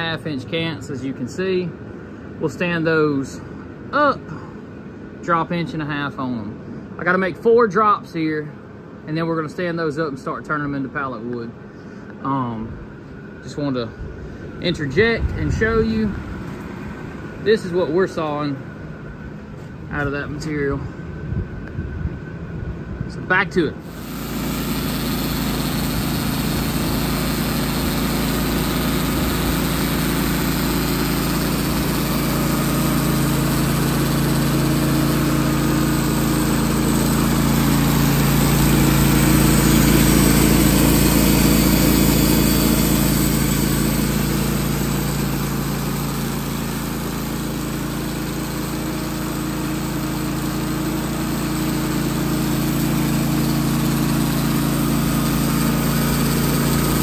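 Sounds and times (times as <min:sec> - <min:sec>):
band sawmill cutting wood: 0:23.8 - 0:57.0.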